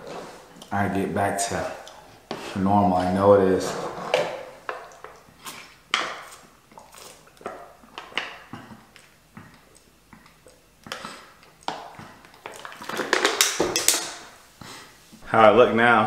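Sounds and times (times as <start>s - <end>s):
man gulping a drink: 6.7s - 13.0s.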